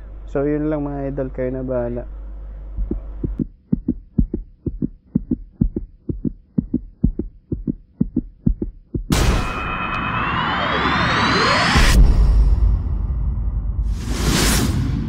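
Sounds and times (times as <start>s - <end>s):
low steady rumble: 0.0s - 9.1s
rapid low thumps: 2.6s - 9.2s.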